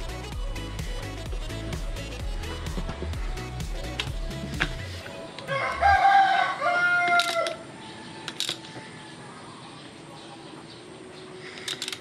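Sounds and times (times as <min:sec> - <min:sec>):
rooster crowing: 0:05.4 - 0:08.2.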